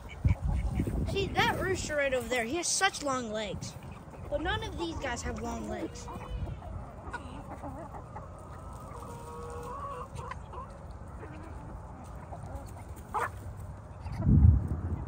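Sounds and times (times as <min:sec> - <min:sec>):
chickens clucking: 0:00.0 - 0:15.0
chicken long drawn-out call: 0:06.1 - 0:11.8.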